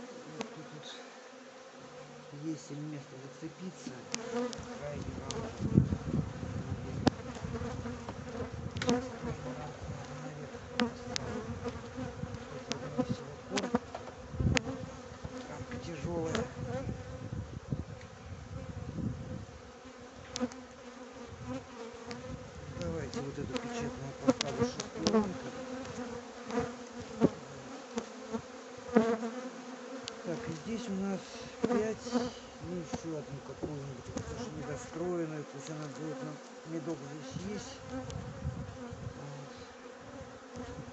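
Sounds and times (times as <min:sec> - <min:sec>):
honeybees buzzing: 0:00.0 - 0:40.9.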